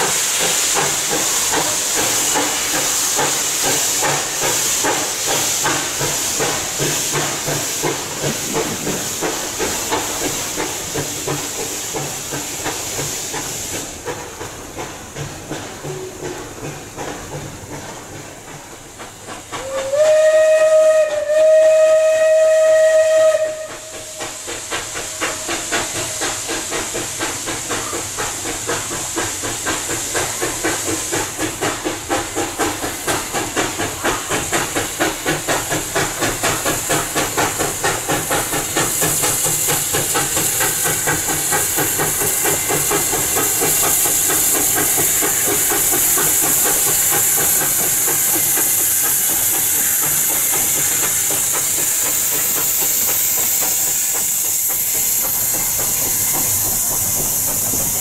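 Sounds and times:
steam locomotive exhaust beats: 0.0 - 58.0
steam whistle blasts: 19.6 - 26.4.

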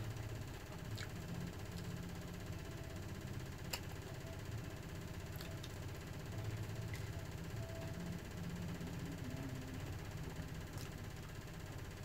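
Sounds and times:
chewing and eating noises: 0.0 - 2.4, 5.0 - 7.5, 10.5 - 11.4
low hum: 0.0 - 12.0.

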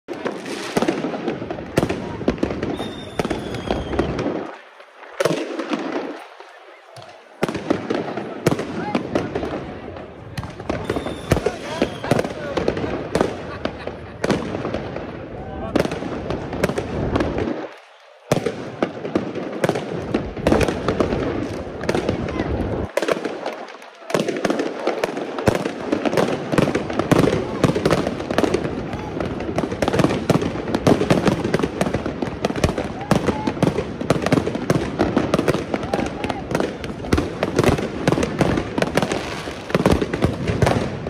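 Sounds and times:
fireworks bangs and pops: 0.0 - 41.0
fireworks crackle: 0.1 - 41.0
firework whistle: 2.1 - 4.6, 10.6 - 12.4.

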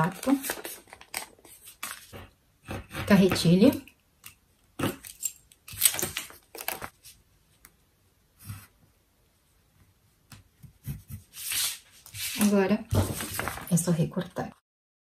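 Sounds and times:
paper and plastic ruler rustling: 0.0 - 2.3, 10.8 - 14.0.

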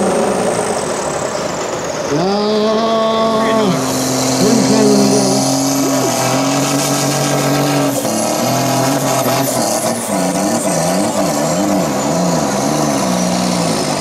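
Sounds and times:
tractor engine running loud: 0.0 - 14.0
turbo whine: 3.5 - 7.4.

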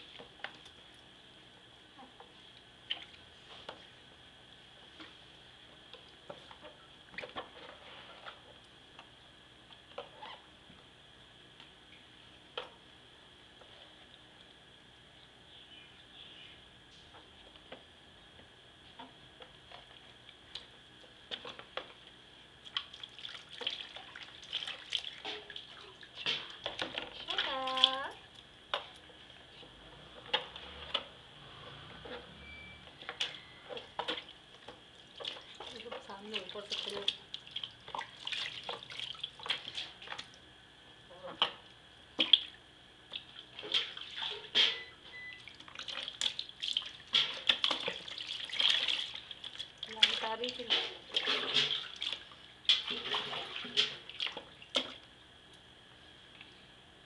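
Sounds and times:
water splashing in a tub: 22.6 - 29.0, 33.8 - 40.4, 41.4 - 55.1.

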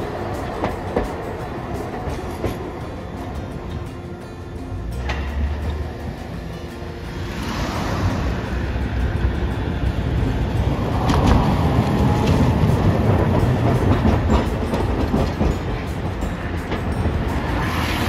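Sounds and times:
steel wheels rumbling on rails: 0.0 - 18.0
clicks over rail joints: 10.8 - 17.6.

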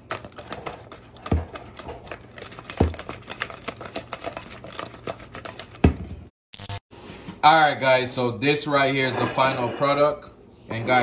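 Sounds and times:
food rattling in shaken container: 0.0 - 5.8.

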